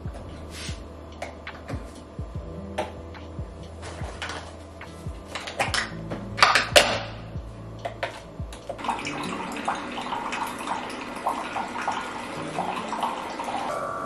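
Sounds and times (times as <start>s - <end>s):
hot water pouring and gurgling: 8.8s - 14.0s.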